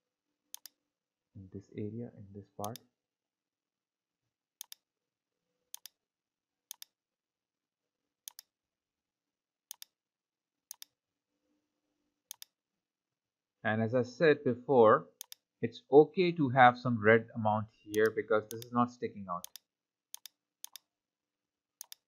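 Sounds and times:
computer mouse clicks: 0.5 - 0.8, 4.6 - 4.8, 5.7 - 6.0, 6.7 - 7.0, 8.3 - 8.5, 9.7 - 10.0, 10.7 - 10.9, 12.3 - 12.6, 15.2 - 15.4, 17.9 - 18.7, 19.4 - 20.9, 21.8 - 22.0.

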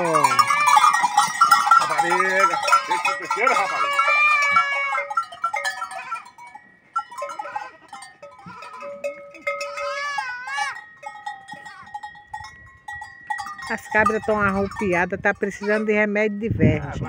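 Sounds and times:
goat bleating: 0.0 - 6.4, 7.0 - 10.9, 11.5 - 12.0, 14.0 - 15.9
goat bells clanking: 0.0 - 17.0.

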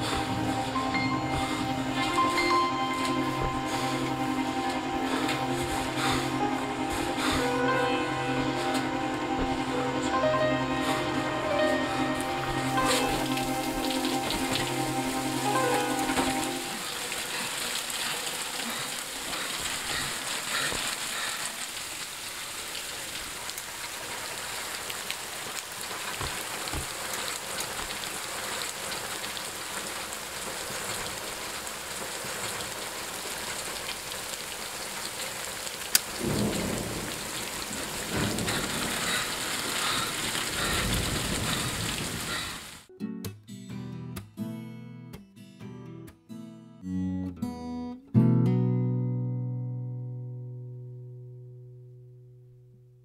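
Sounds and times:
heavy rain falling: 0.0 - 42.9
thunder crack and rumble: 36.0 - 42.8.

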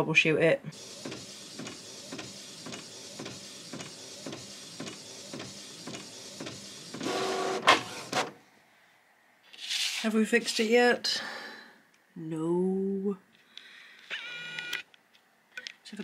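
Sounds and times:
printer whir: 0.7 - 8.4
inkjet printer ticking: 0.8 - 8.1.

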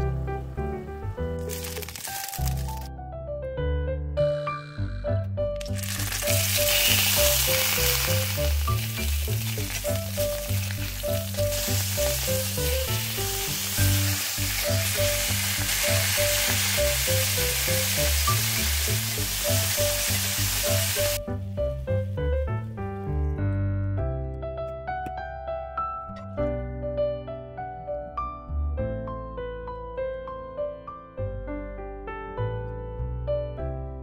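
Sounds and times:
background music: 0.0 - 34.0
sausages sizzling in oil: 5.6 - 21.2.

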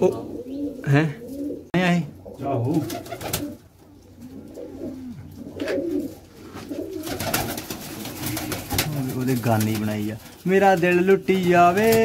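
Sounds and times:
pigeons cooing: 0.0 - 9.5
wings flapping: 2.7 - 3.6, 5.6 - 12.0.

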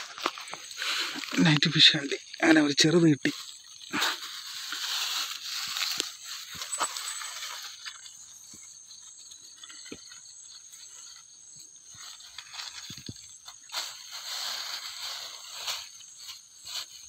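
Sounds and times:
clicks on stony ground: 0.0 - 2.4, 5.6 - 10.6
plastic bag rustling: 0.0 - 8.5, 11.8 - 17.0.

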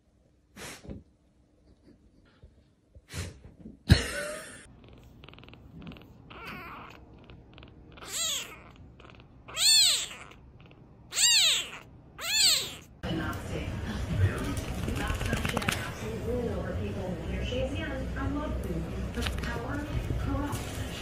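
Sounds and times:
kitten meowing: 5.2 - 13.0.

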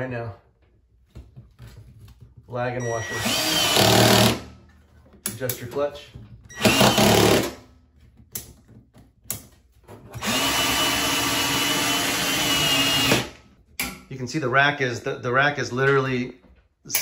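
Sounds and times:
cordless drill whining: 2.9 - 4.4, 6.5 - 7.6, 10.2 - 13.4
drill clicks: 6.6 - 7.5, 10.2 - 13.4.

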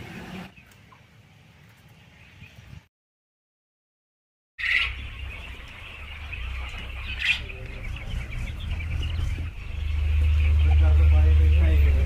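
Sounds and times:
quail chirping and calling: 4.6 - 12.0
low rumble: 4.9 - 12.0.

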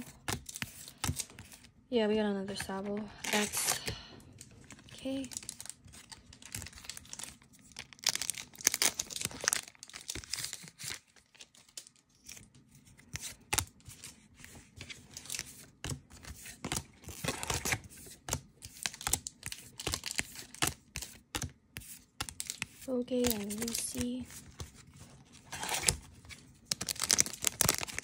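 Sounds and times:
cards clicking and sliding: 0.0 - 1.7, 13.0 - 28.0
foil wrapper tearing and crinkling: 4.4 - 14.0, 18.6 - 28.0.

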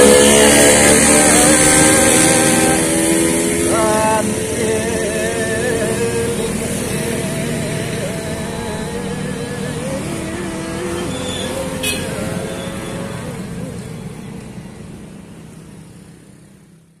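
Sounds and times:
wavering pitched tone: 0.0 - 4.4, 5.6 - 13.4
vehicle engine running: 0.0 - 17.0.

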